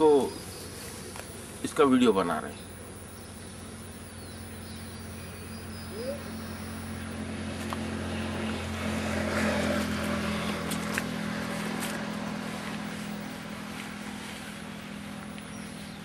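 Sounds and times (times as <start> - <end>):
faint bird chirps: 0.0 - 7.2
motor engine running: 0.0 - 16.0.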